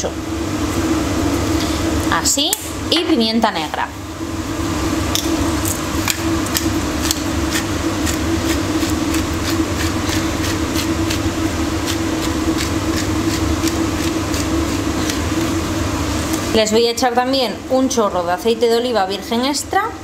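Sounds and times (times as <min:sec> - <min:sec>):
range hood fan running: 0:00.0 - 0:20.0
pepper mill grinding: 0:05.6 - 0:15.7.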